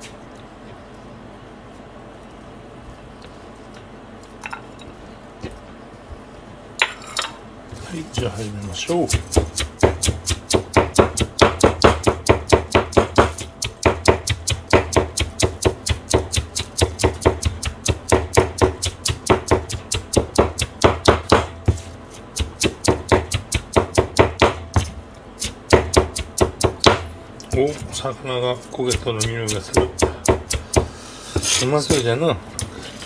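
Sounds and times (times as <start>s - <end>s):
cleaver chopping on cutting board: 9.0s - 28.0s, 28.6s - 31.6s.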